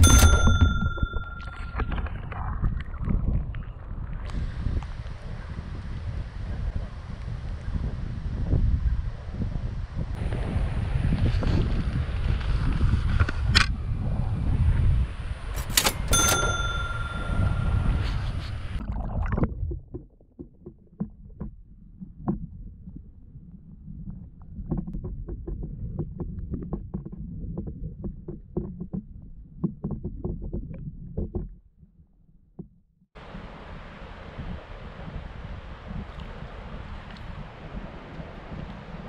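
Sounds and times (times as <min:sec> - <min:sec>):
underwater rumble of flowing water: 0:00.5 - 0:15.6, 0:17.4 - 0:32.6, 0:33.2 - 0:39.0
wind rushing: 0:04.1 - 0:15.6.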